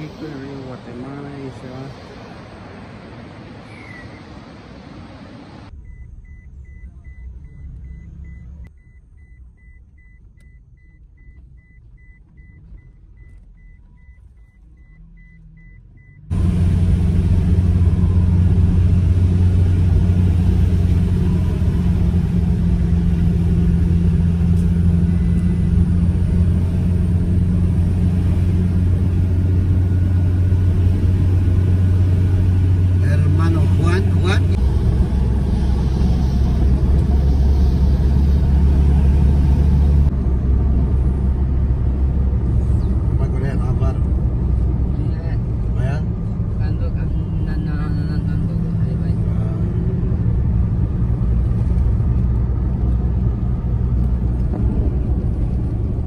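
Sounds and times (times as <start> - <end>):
car engine and tyre drone: 0.0 - 56.0
faint high pulsing beep: 5.7 - 16.3.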